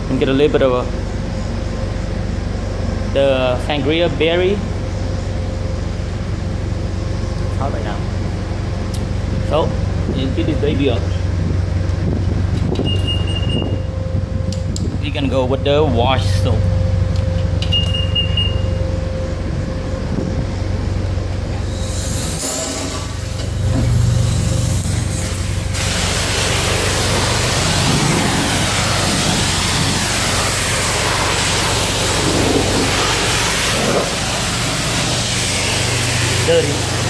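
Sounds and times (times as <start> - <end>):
steady low hum: 0.0 - 37.0
short high beep: 12.8 - 14.0, 17.6 - 19.0
water spraying from pressure wand: 24.2 - 37.0.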